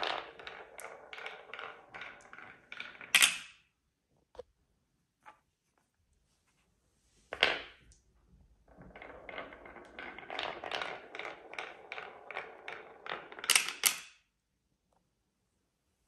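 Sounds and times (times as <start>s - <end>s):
marbles clacking: 0.0s - 3.6s, 8.6s - 14.2s
marbles rolling on wooden track: 0.0s - 3.6s, 7.3s - 14.2s.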